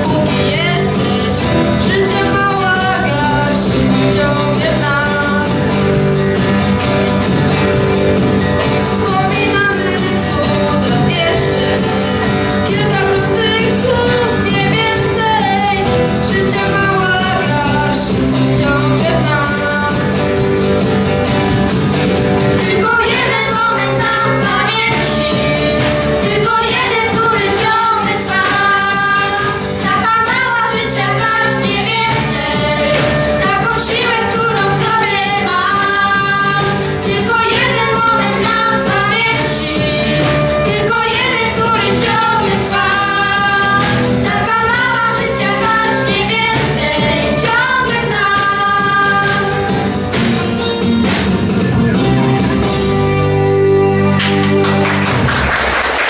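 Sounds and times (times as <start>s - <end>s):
girl singing: 0.0s - 5.6s, 8.9s - 20.1s, 22.5s - 49.9s
steady drum beat: 0.0s - 53.4s
flute: 31.4s - 35.2s, 38.8s - 43.6s.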